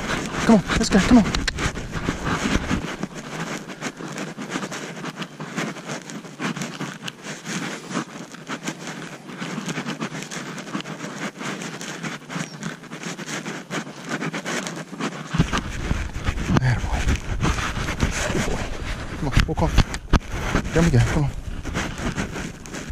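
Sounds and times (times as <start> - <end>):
wind rumble on microphone: 0.0 - 3.9, 15.3 - 22.9
horse hooves in dry leaves: 0.0 - 22.9
tack rustling: 0.0 - 22.9.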